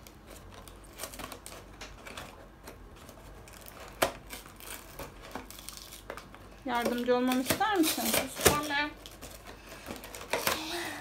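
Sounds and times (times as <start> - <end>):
cardboard flap snapping: 3.4 - 10.8.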